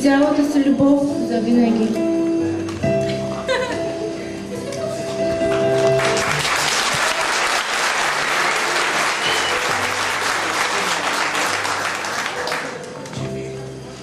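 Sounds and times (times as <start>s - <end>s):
soft music: 0.0s - 14.0s
crowd clapping: 5.4s - 13.5s.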